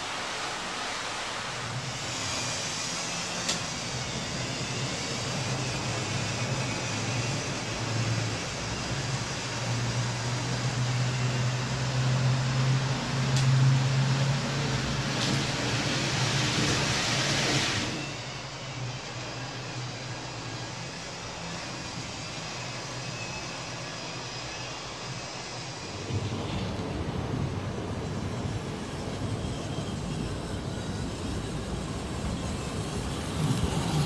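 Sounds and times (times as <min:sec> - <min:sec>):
model train motor hum: 0:00.0 - 0:34.0
wheels on rails: 0:12.3 - 0:18.2, 0:25.8 - 0:34.0.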